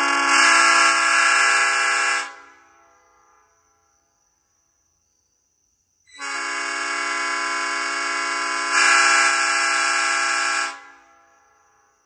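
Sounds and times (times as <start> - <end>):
locomotive air horn blast: 0.0 - 2.5, 6.2 - 11.1.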